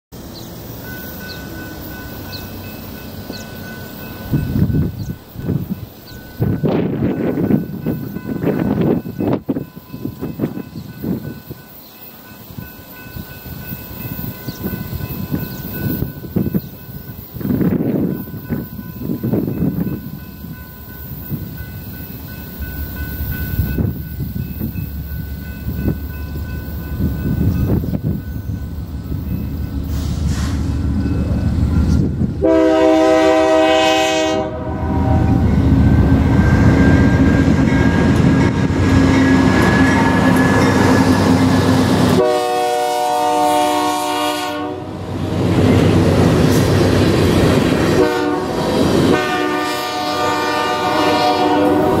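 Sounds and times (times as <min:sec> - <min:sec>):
diesel locomotive rumble: 0:00.1 - 0:52.0
train wheels on rails: 0:00.1 - 0:52.0
train air horn blasts: 0:32.4 - 0:38.1, 0:38.9 - 0:45.1, 0:47.6 - 0:52.0.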